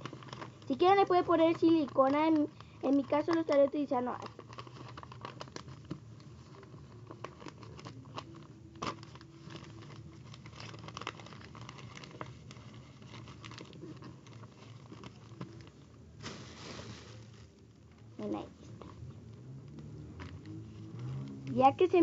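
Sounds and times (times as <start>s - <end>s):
paper rustling and crinkling: 0.0s - 22.0s.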